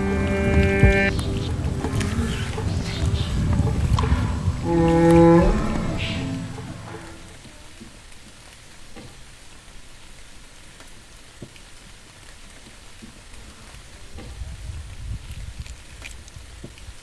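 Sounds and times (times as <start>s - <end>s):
low rumble: 0.0s - 7.5s
faint outdoor hiss: 0.0s - 17.0s
wet clicks of fish gutting: 15.6s - 16.9s.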